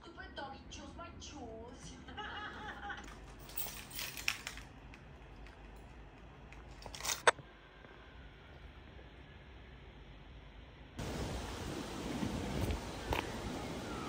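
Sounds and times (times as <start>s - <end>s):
small objects clinking and rattling: 3.0s - 7.3s.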